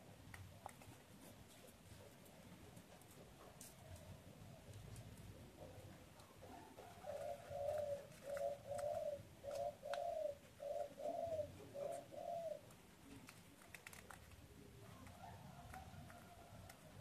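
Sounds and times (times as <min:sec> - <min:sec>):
dove cooing: 0:03.8 - 0:17.0.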